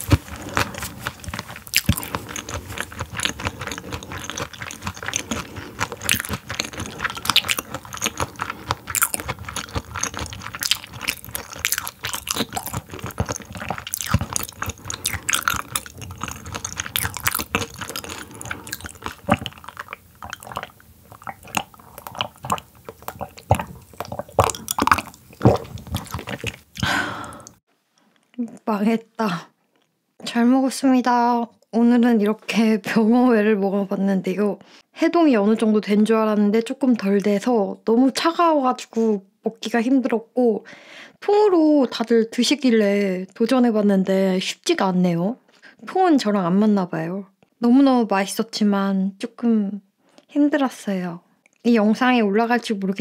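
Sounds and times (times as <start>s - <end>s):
crunchy chewing of frozen fish: 0.0s - 27.6s.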